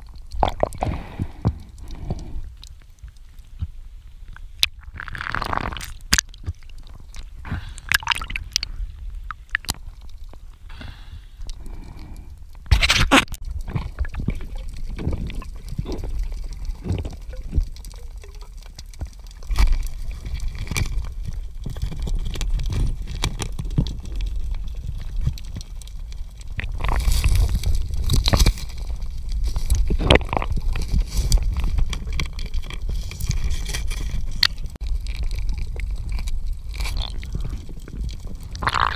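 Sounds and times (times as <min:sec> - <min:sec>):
water gurgling: 0:00.0 - 0:02.6, 0:04.5 - 0:10.4, 0:13.2 - 0:38.9.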